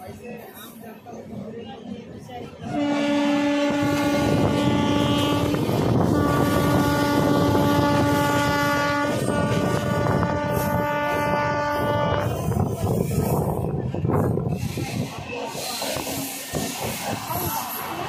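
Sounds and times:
moving train running noise: 0.0s - 18.0s
train horn blasts: 2.6s - 12.8s.

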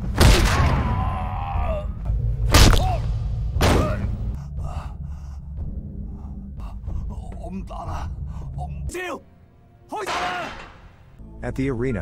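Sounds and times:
punch impacts: 3.6s - 4.1s.

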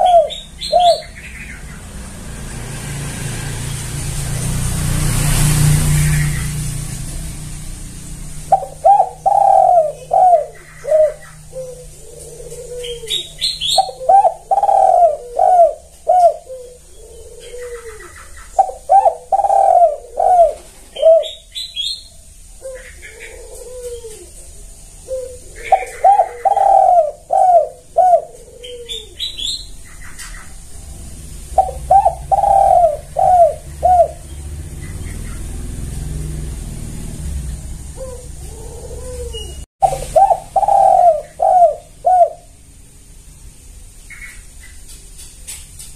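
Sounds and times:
dove cooing: 0.0s - 1.8s, 8.2s - 37.0s, 37.8s - 42.6s.

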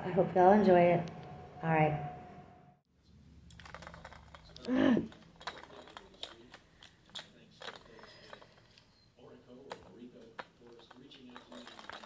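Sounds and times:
plastic toy ball clicking and rattling: 3.5s - 8.8s, 9.7s - 12.0s.

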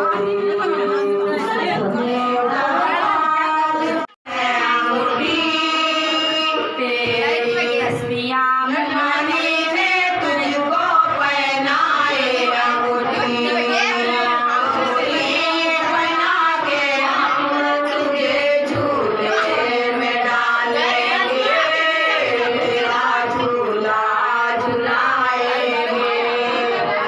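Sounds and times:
woman singing into a microphone: 0.0s - 27.0s.

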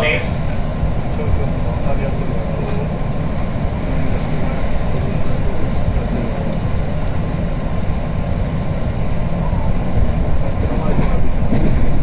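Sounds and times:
train interior rumble: 0.0s - 12.0s.

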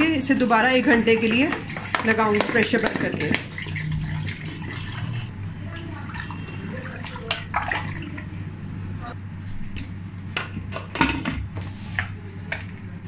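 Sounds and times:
steady low hum: 3.4s - 13.0s.

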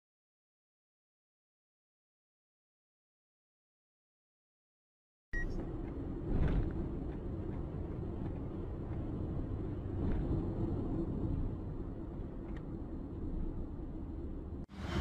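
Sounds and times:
car road and engine rumble: 5.4s - 15.0s.

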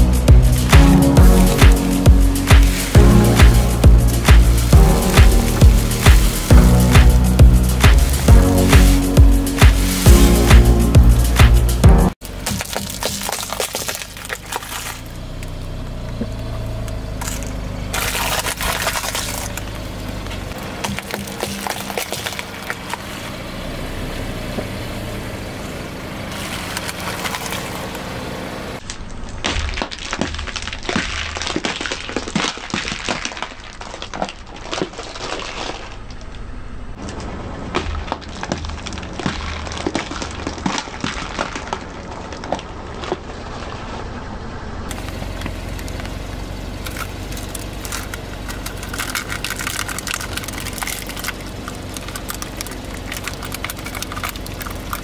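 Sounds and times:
car engine running low: 0.0s - 29.2s, 35.8s - 55.0s
plastic capsules cracking under tyre: 12.2s - 15.6s, 16.9s - 23.0s, 28.8s - 43.3s, 44.9s - 55.0s.

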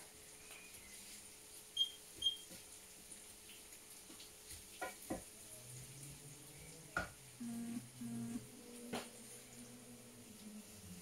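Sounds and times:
faint sizzle: 0.0s - 11.0s
woman humming: 7.4s - 8.4s.

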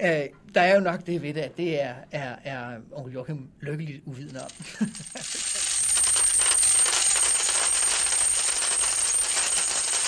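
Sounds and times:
coins pouring and clinking: 4.2s - 10.0s.

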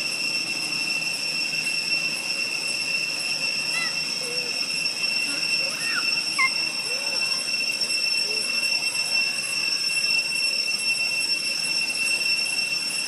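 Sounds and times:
high-pitched whine: 0.0s - 13.0s
faint chirps: 3.6s - 7.5s.

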